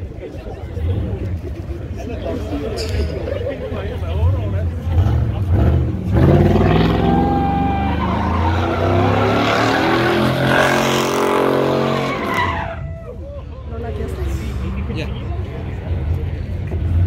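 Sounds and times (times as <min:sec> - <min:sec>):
truck engine revving hard: 0:04.8 - 0:12.8
tyres squealing on asphalt: 0:06.3 - 0:13.4.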